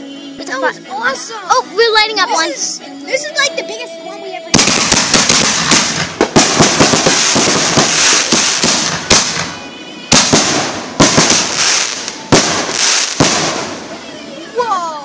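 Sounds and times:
firework cracks and crackling pops: 4.5 - 14.7
firework hissing: 4.5 - 15.0.

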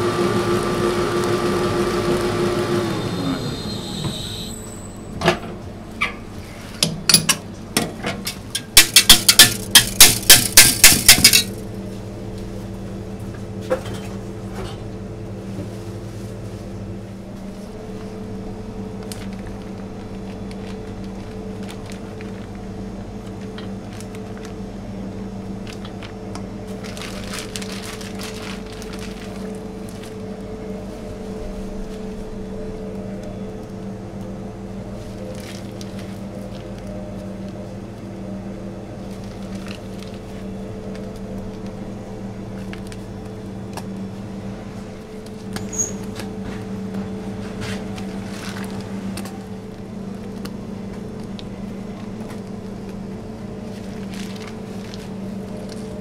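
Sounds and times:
kitchen machine hum: 0.0 - 56.0
rustle of piping bag: 19.0 - 24.6, 26.7 - 32.3, 47.3 - 50.4, 51.2 - 56.0.

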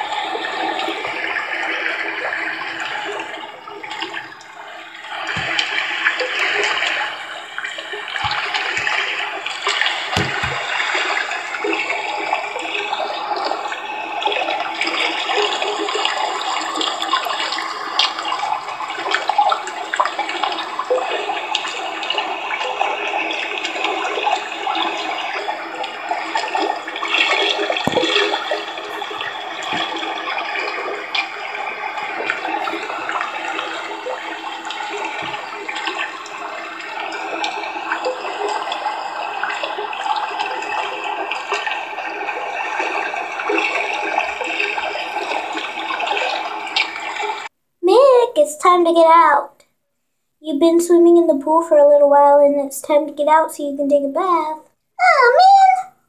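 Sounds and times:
tap water running into tub: 0.0 - 47.5
low knocks: 10.2 - 10.8.

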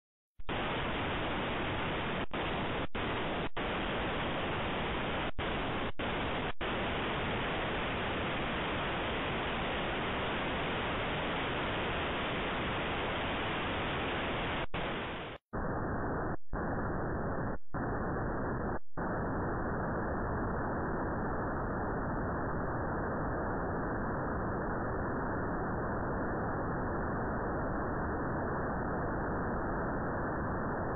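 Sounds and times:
static hiss: 0.4 - 22.6.

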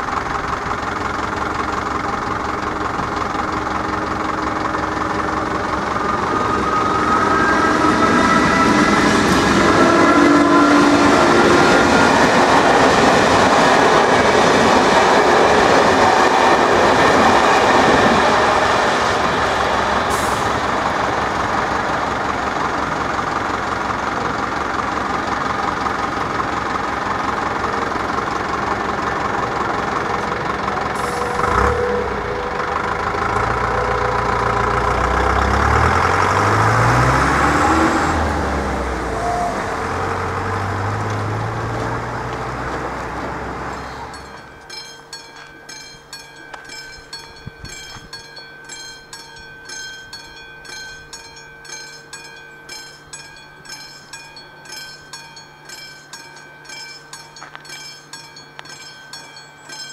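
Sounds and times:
level-crossing warning bell: 0.0 - 36.6, 43.7 - 59.9
engines accelerating: 0.8 - 44.4.

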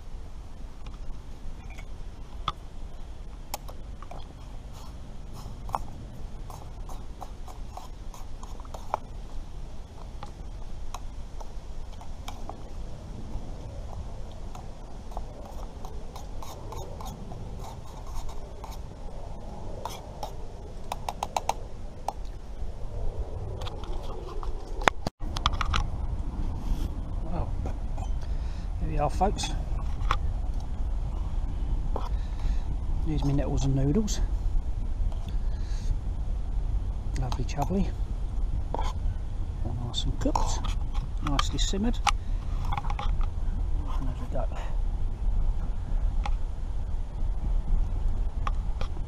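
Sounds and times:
steady low rumble: 0.0 - 49.0.

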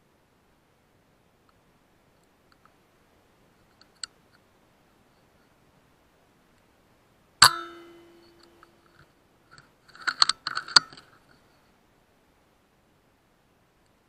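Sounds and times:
air rifle shot crack: 7.4 - 8.5
ringing tone: 7.4 - 8.9.

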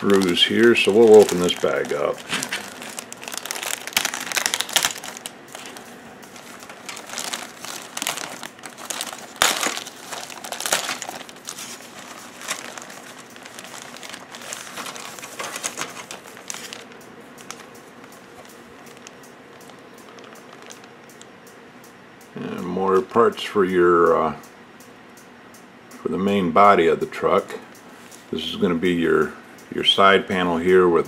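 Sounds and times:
plastic bag crinkling: 0.0 - 17.7, 18.3 - 21.0.

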